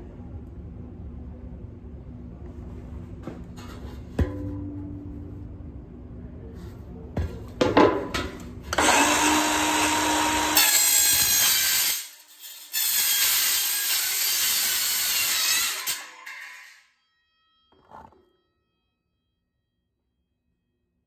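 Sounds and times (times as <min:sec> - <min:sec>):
circular saw cutting steel: 0:08.8 - 0:17.0.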